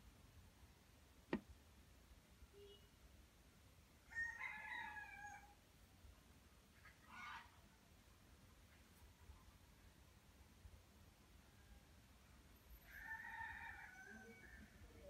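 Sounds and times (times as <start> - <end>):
rooster crowing faintly: 4.0 - 5.6, 11.4 - 15.0.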